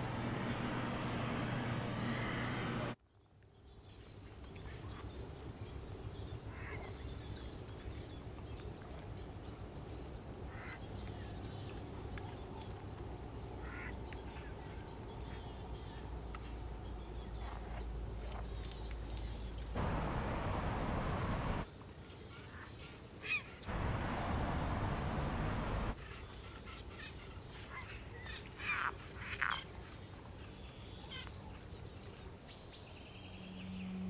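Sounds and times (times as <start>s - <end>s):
city traffic noise: 0.0s - 3.0s, 19.8s - 21.6s, 23.7s - 26.0s
low distant hum: 0.0s - 3.0s, 10.0s - 21.7s, 23.7s - 26.0s
duck quacks: 13.6s - 13.9s
small birds chirping: 23.3s - 34.0s.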